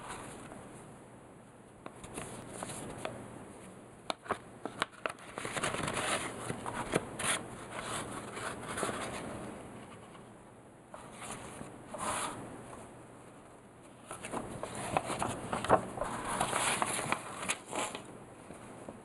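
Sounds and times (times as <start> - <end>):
sharp paper clicks: 4.1 - 7.0, 14.0 - 18.1
paper envelope rustling: 4.1 - 9.2, 13.9 - 18.6.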